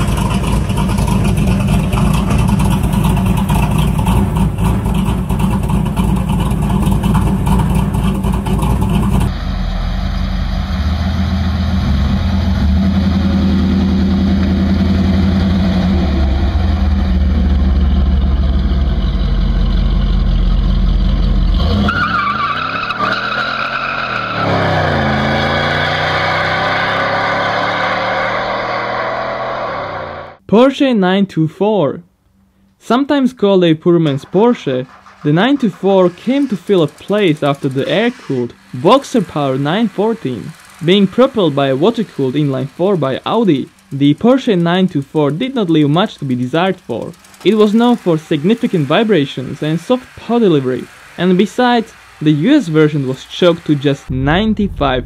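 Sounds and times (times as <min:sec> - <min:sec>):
car engine deep exhaust rumble: 0:00.0 - 0:22.0, 0:34.2 - 0:55.0.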